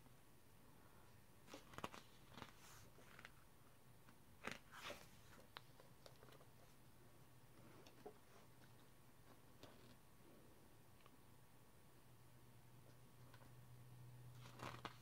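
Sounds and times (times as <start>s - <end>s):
paper pages turning: 1.4s - 3.4s, 4.4s - 6.5s, 14.3s - 15.0s.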